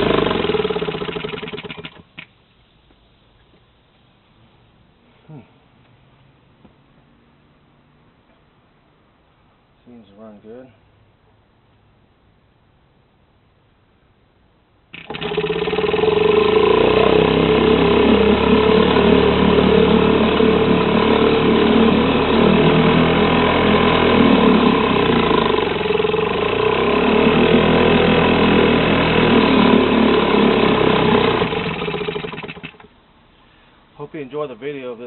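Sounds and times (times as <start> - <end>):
outboard motor running: 0.0 - 2.2, 15.0 - 32.9
outboard motor pull-started: 0.0 - 2.3, 14.9 - 32.9.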